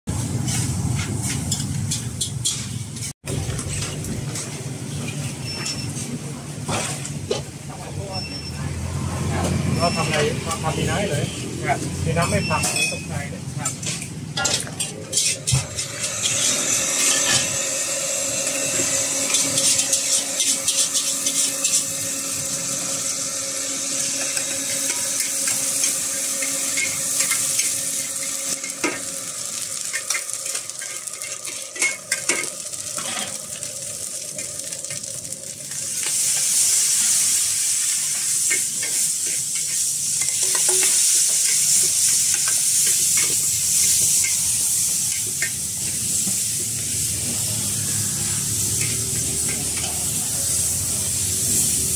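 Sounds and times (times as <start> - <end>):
metal ladle scraping a pan: 0.4 - 3.1, 18.4 - 21.9
food sizzling in hot oil: 6.7 - 51.9.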